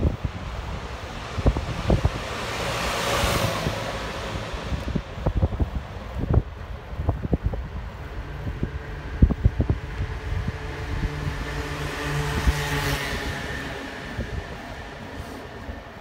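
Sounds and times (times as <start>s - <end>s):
low hum and rushing: 0.0s - 16.0s
wind buffeting microphone: 0.0s - 16.0s.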